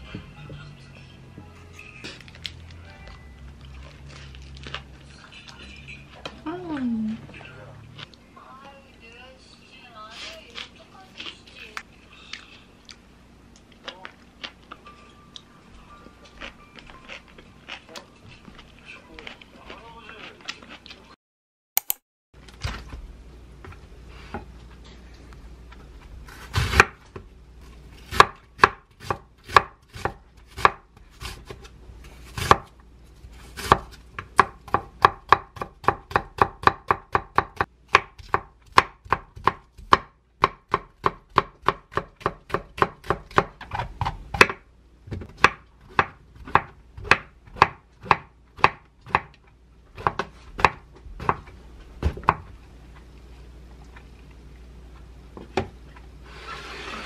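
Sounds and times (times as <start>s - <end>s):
knife chopping on wooden board: 28.1s - 31.6s, 32.3s - 32.7s, 33.6s - 49.3s, 50.0s - 52.4s.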